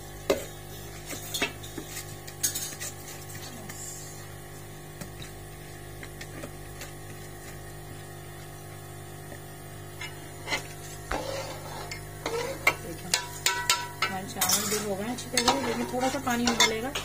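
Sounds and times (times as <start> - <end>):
steady low hum: 0.0 - 17.0
spoon scraping rice from colander: 10.4 - 12.8.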